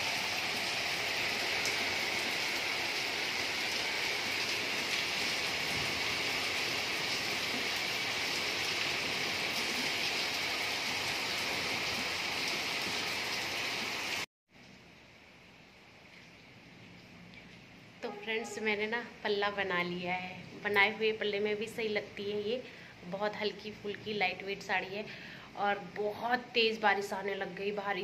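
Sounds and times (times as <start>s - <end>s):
rain falling on leaves and pavement: 0.0s - 14.2s.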